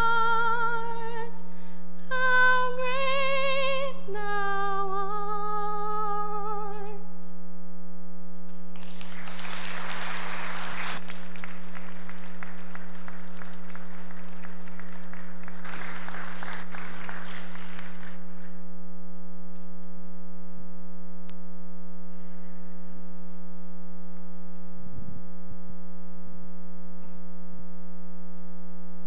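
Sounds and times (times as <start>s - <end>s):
electrical mains hum: 0.0s - 29.0s
applause: 8.5s - 18.6s.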